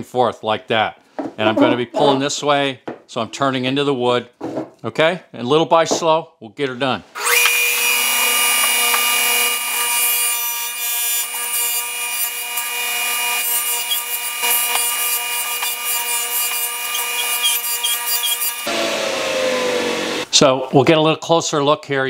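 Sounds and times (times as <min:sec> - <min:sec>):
saw blade cutting wood: 0:07.2 - 0:20.3
table saw whining: 0:07.2 - 0:20.3.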